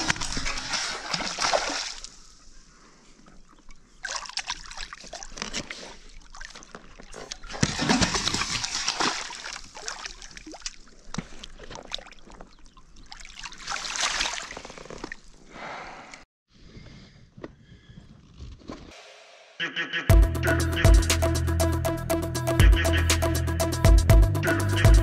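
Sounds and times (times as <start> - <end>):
fish splashing at water surface: 13.0 - 15.1.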